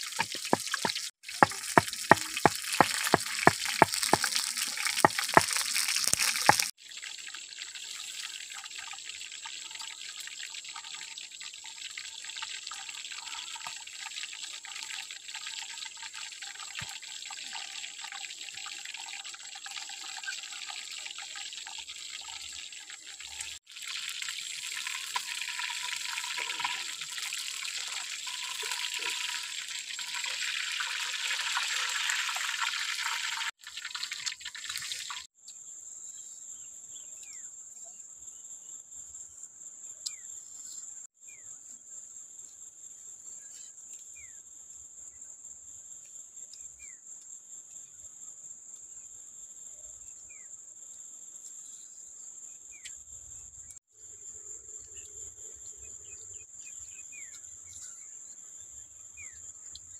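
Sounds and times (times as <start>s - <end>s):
fish sizzling in oil: 0.0s - 35.3s.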